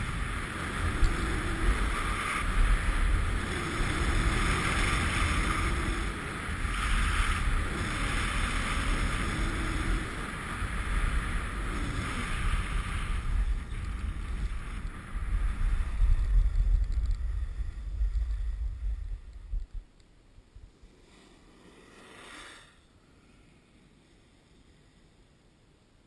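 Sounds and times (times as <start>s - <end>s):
snow hissing under skis: 0.0s - 16.4s, 20.8s - 25.0s
wind buffeting microphone: 0.0s - 19.9s.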